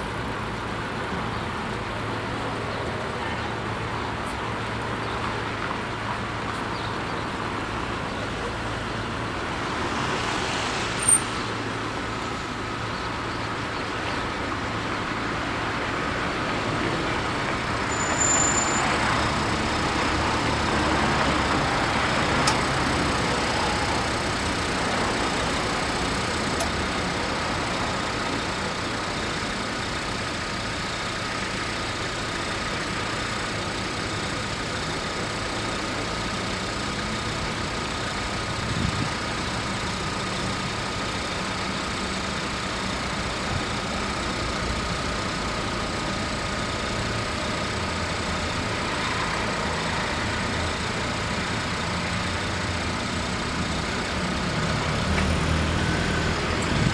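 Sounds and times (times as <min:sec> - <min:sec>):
cars idling: 0:00.0 - 0:56.9.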